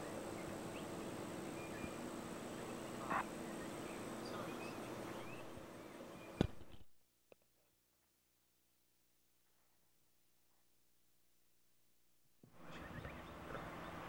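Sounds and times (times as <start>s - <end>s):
bird chirps: 0.3s - 6.5s, 12.6s - 14.0s.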